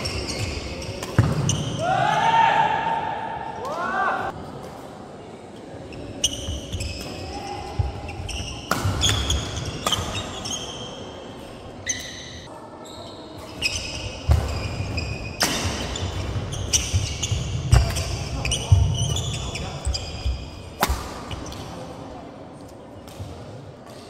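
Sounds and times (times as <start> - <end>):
shoes squeaking: 0.0 - 1.7, 5.9 - 21.6
rackets hitting shuttlecock: 8.6 - 10.4, 20.8 - 21.8.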